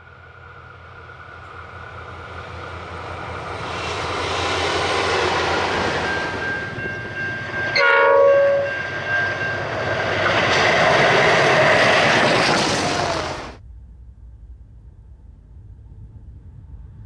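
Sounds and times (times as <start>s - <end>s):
diesel locomotive engines passing: 0.0s - 14.4s
train horn blast: 7.7s - 9.6s.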